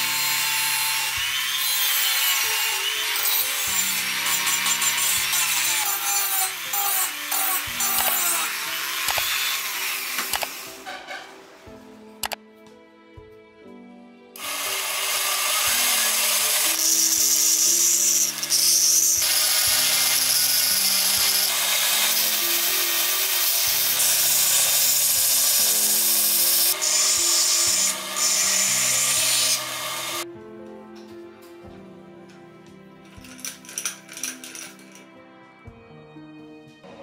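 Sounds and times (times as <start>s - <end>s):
belt sander grinding metal: 0.0s - 10.2s, 14.4s - 30.2s.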